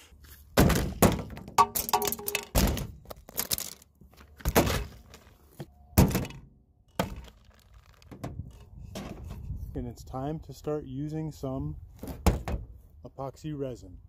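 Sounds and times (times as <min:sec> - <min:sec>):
objects thunking on plastic sheeting: 0:00.5 - 0:05.3, 0:07.0 - 0:08.4, 0:12.0 - 0:12.7.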